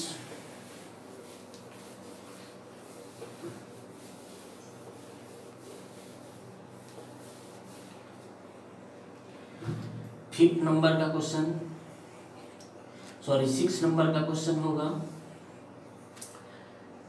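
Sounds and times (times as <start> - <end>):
cloth rubbing on whiteboard: 0.0 - 8.8.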